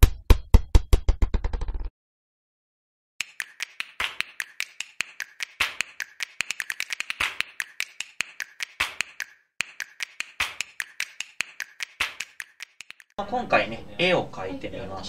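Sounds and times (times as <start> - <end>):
sharp irregular clicks: 3.2 - 13.2.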